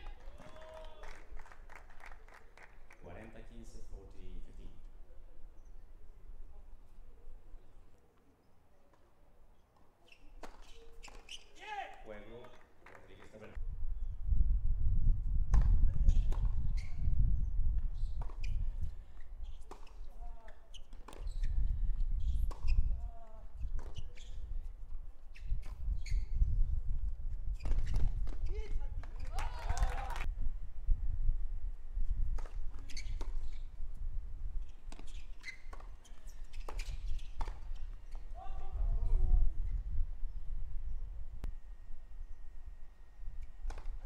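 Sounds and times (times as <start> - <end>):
racquets striking tennis ball: 9.8 - 13.4, 19.5 - 21.5
shoe squeak: 10.0 - 11.6, 16.1 - 17.1, 18.0 - 24.6, 25.3 - 26.6, 27.5 - 29.4, 32.8 - 33.7, 34.6 - 38.3
low rumble on microphone: 13.6 - 19.0
tennis ball bouncing on court: 18.2 - 18.5, 19.6 - 21.5, 22.4 - 22.8, 23.7 - 24.2, 34.9 - 38.3.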